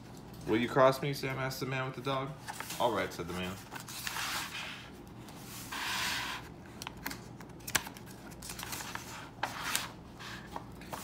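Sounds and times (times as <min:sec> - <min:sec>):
paper page rustling: 0:02.4 - 0:04.7, 0:07.0 - 0:11.0.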